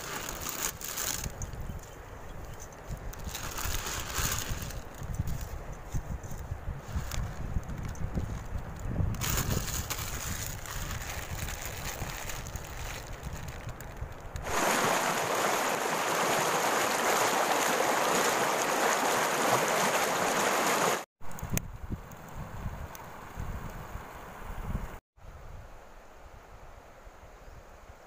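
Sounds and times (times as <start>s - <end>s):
wind rumbling on microphone: 0.0s - 28.0s
river water over rapids: 14.5s - 21.0s.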